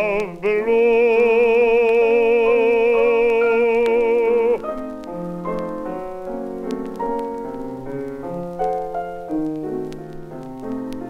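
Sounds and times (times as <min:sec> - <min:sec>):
baritone voice singing with vibrato: 0:00.0 - 0:04.8
piano accompaniment: 0:00.0 - 0:11.0
record surface clicks: 0:00.0 - 0:11.0.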